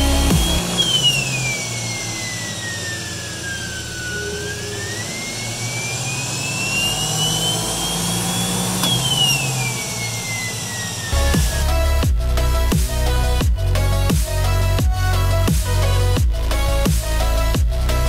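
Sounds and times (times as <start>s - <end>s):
electric motor whine: 0.0s - 13.3s.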